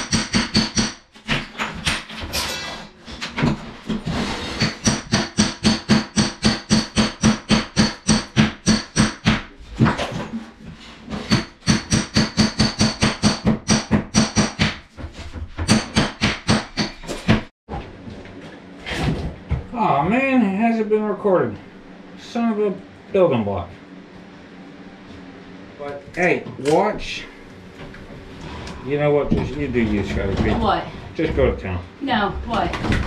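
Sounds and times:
hammer striking steel chisel: 0:00.0 - 0:01.0, 0:04.6 - 0:09.4, 0:11.3 - 0:14.8.

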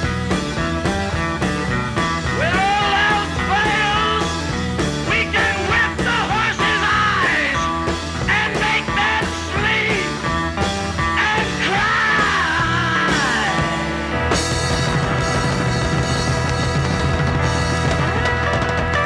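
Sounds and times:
rock band playing live: 0:00.0 - 0:19.0
person singing: 0:02.3 - 0:10.3, 0:11.0 - 0:14.0.

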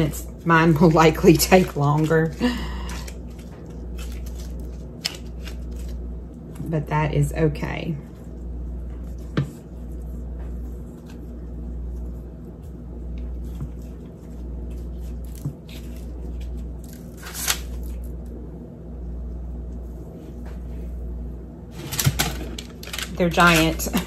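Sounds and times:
squishing of cookie dough: 0:00.0 - 0:21.2
low hum: 0:00.0 - 0:24.0.

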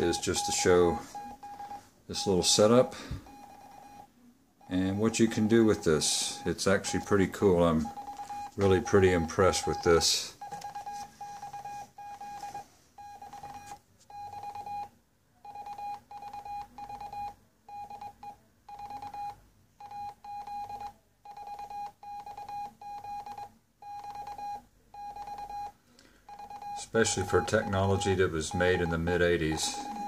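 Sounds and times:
morse code beeps: 0:00.0 - 0:30.0.

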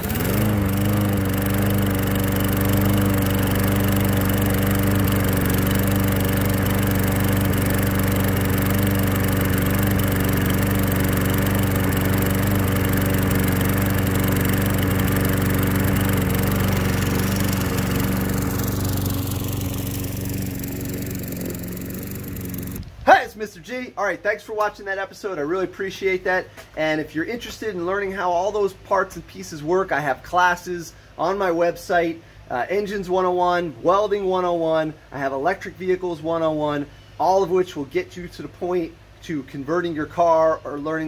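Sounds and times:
cordless drill spinning: 0:00.0 - 0:23.0
lawnmower engine running: 0:00.0 - 0:23.0.

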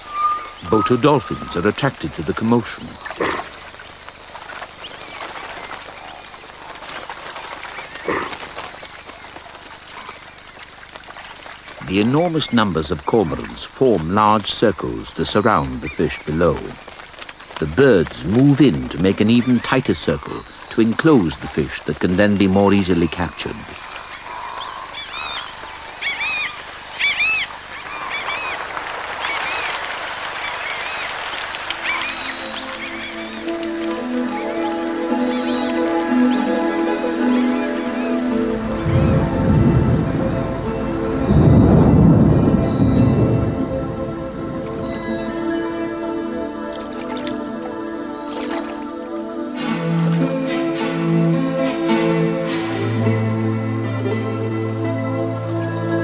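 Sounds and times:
flock of cormorants noise: 0:00.0 - 0:13.5, 0:19.1 - 0:39.5, 0:44.7 - 0:50.2
bird calls: 0:00.0 - 0:14.1, 0:15.2 - 0:41.4, 0:42.5 - 0:49.2.

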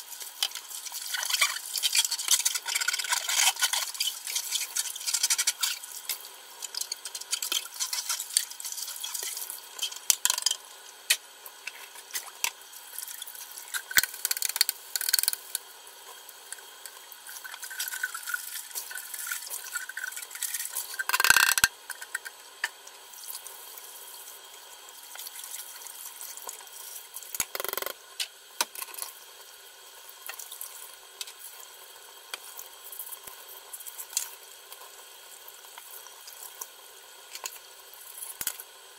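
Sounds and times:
plastic parts clicking and knocking: 0:10.0 - 0:10.6, 0:21.0 - 0:22.8, 0:27.4 - 0:28.0.

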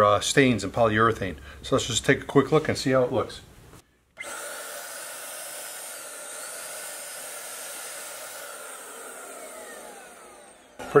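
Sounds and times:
paint sprayer turbine hissing: 0:04.2 - 0:11.0.

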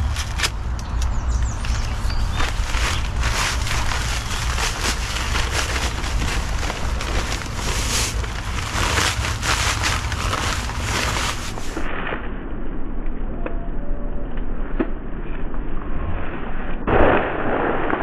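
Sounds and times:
paper sack rustling: 0:00.0 - 0:00.7, 0:01.4 - 0:11.9
dry concrete mix pouring: 0:02.4 - 0:11.8.

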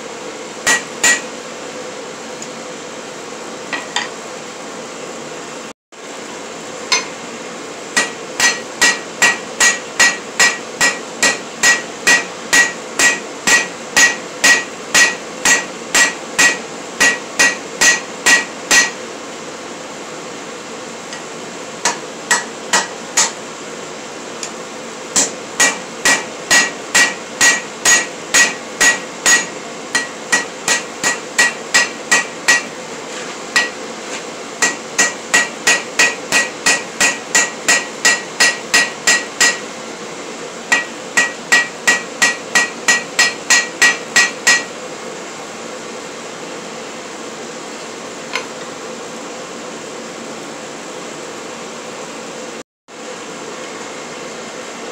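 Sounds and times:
hammer striking steel on anvil: 0:00.6 - 0:01.3, 0:03.7 - 0:04.2, 0:06.9 - 0:07.2, 0:08.0 - 0:19.0, 0:21.1 - 0:23.4, 0:24.4 - 0:32.8, 0:33.5 - 0:33.8, 0:34.6 - 0:39.7, 0:40.7 - 0:44.7.

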